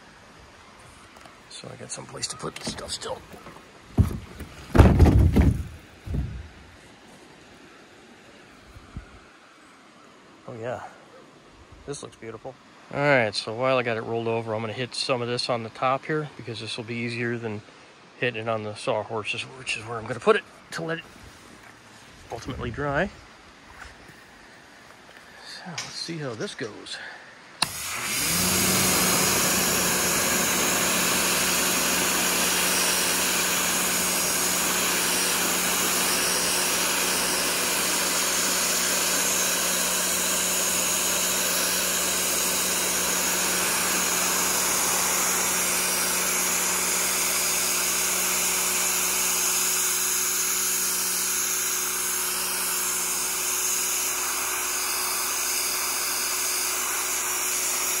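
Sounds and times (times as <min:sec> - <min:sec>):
high-pressure water jet hissing: 0:27.6 - 0:58.0
pressure washer pump hum: 0:27.6 - 0:58.0.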